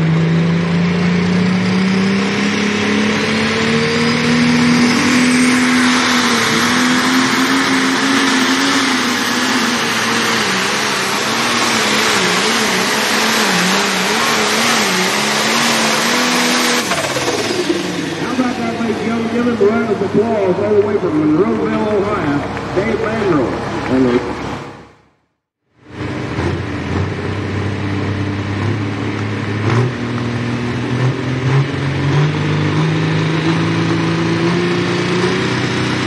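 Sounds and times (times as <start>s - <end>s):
diesel engine running flat out: 0.0s - 25.1s, 25.7s - 36.0s
faint rising whistle: 3.2s - 8.4s.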